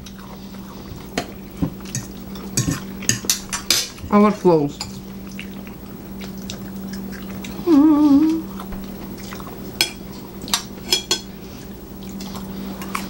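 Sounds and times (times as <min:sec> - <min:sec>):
faint low hum: 0:00.0 - 0:13.0
forks clinking on plates: 0:01.8 - 0:04.0, 0:09.8 - 0:11.3
person humming mmm: 0:07.4 - 0:08.7.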